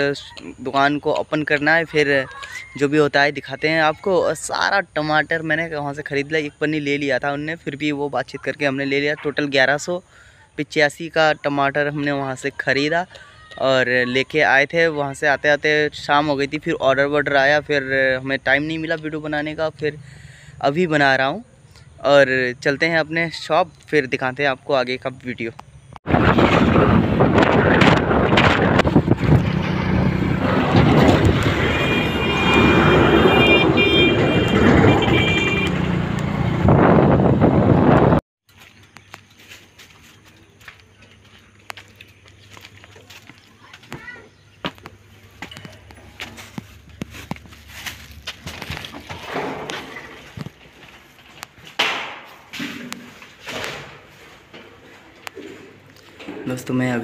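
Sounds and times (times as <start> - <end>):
road traffic rumble: 14.6 - 57.0
plastic chair scraping floor: 26.1 - 31.7, 46.2 - 51.2, 52.6 - 54.8.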